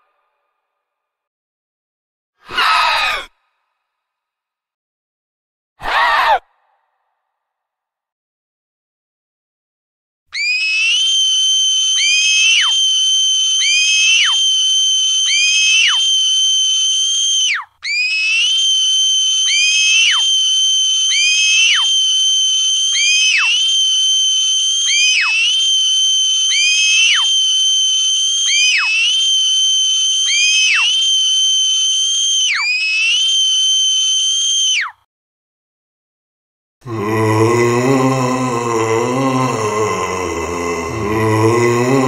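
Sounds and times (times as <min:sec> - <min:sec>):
shrill high-pitched screams: 0:02.4 - 0:03.3, 0:05.8 - 0:06.5, 0:10.3 - 0:35.1.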